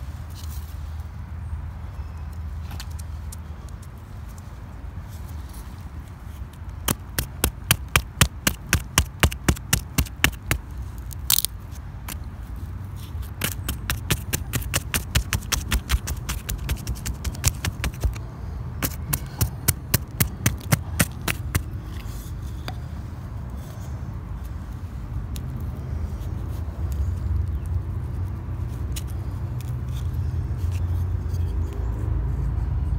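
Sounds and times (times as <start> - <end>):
stick knocking and scraping rock: 6.8 - 12.3, 13.0 - 18.2, 18.8 - 22.8.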